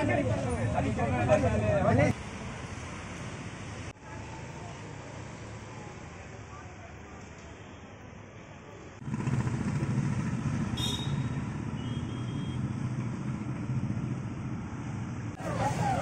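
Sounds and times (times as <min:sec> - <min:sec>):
vehicle engine rumbling: 0:09.0 - 0:16.0.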